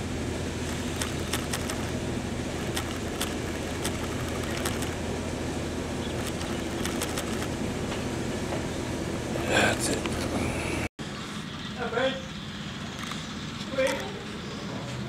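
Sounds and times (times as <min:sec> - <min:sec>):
diesel locomotive drone: 0:00.0 - 0:15.0
train wheels clicking on track: 0:00.7 - 0:01.9, 0:02.6 - 0:05.0, 0:06.1 - 0:08.6.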